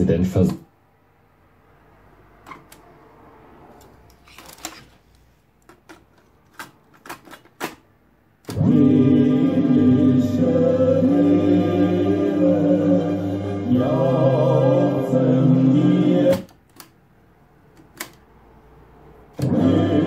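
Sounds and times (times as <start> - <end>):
music playing from tape: 8.5 - 16.4, 19.4 - 20.0
cassette player keys clunking: 17.8 - 18.2.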